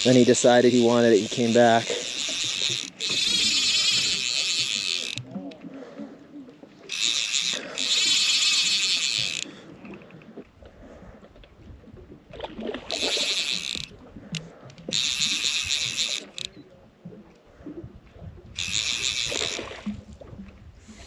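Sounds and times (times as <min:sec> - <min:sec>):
fly reel drag buzzing: 0:00.0 - 0:05.4, 0:06.9 - 0:09.7, 0:12.8 - 0:13.9, 0:14.9 - 0:16.6, 0:18.6 - 0:19.9.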